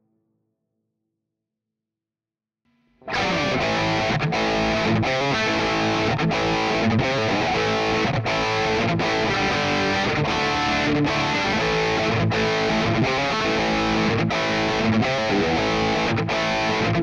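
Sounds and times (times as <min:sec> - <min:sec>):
distorted electric guitar: 0:02.7 - 0:17.0.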